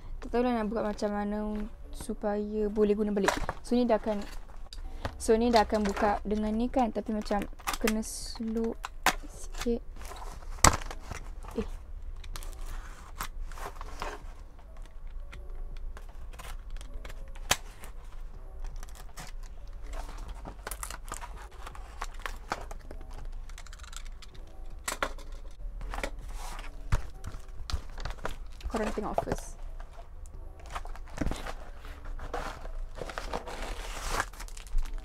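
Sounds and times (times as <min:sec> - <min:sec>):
cardboard tearing: 0:30.7 - 0:35.0.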